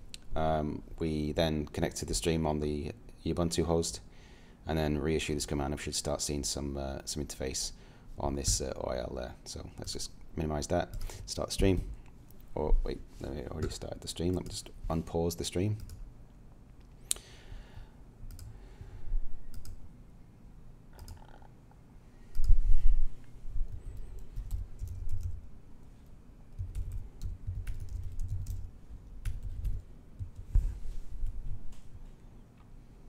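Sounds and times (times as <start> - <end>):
typing on computer keyboard: 24.2 - 25.4, 26.5 - 30.5.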